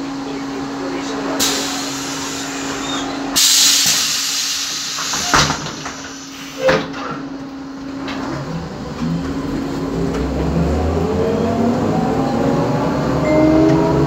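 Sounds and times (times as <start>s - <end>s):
bus electrical hum: 0.0s - 14.0s
hiss of air from doors: 1.4s - 6.9s.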